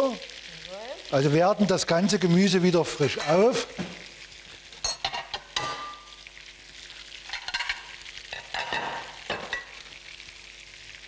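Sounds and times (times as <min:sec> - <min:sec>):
vegetables sizzling: 0:00.0 - 0:11.0
spatula scraping frying pan: 0:07.2 - 0:09.7.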